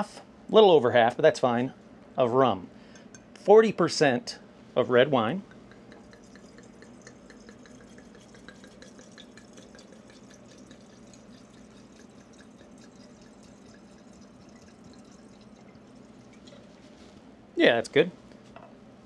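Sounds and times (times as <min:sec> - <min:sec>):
small glugs and drips: 0:05.5 - 0:16.8
wine pouring into glass jar: 0:05.8 - 0:16.8.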